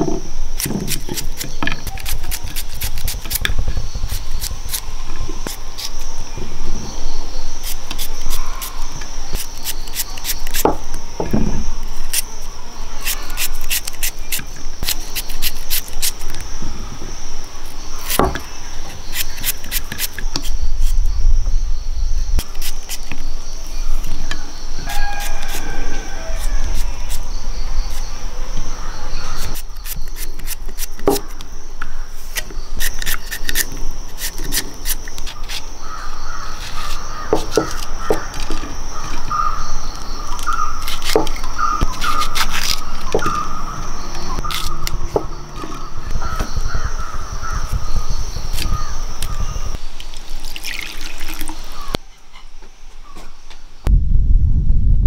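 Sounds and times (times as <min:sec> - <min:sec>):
high-pitched insect drone: 0:00.0 - 0:52.0
crows cawing: 0:24.8 - 0:26.8, 0:35.8 - 0:47.7.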